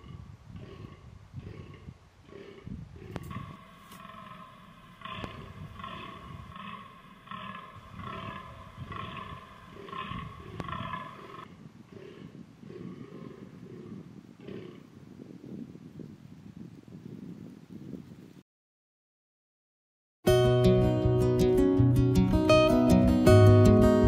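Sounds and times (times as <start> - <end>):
deer groaning: 0.0 - 14.8.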